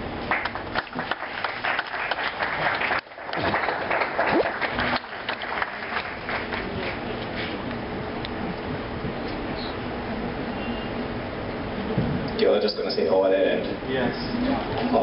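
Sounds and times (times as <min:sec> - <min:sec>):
audience applauding: 0:00.3 - 0:07.5.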